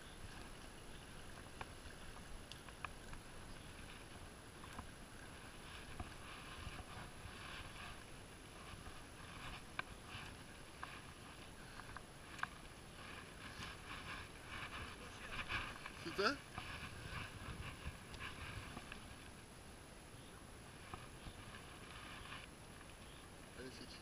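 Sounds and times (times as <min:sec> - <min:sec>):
rustling through dry brush: 0:00.2 - 0:19.5, 0:20.6 - 0:23.3
sharp small clicks and snaps: 0:02.4 - 0:03.2.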